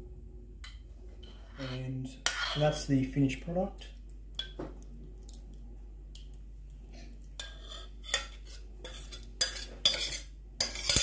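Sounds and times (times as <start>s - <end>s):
metal spoon scraping a saucepan: 1.2s - 2.9s, 7.4s - 11.0s
spoon clinking against saucepan: 7.4s - 11.0s.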